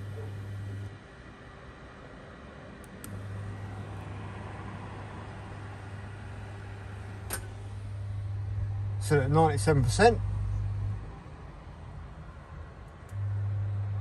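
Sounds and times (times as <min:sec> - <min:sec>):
cooling fan hissing: 0:00.0 - 0:01.0, 0:02.7 - 0:14.0
low electrical hum: 0:00.0 - 0:14.0.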